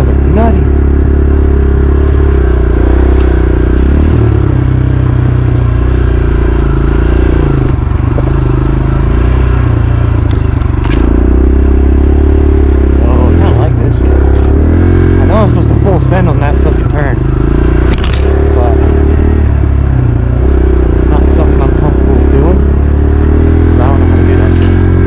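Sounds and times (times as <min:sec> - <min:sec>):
dirt bike engine running: 0:00.0 - 0:25.0
sharp clatters: 0:10.2 - 0:11.2, 0:17.8 - 0:18.4.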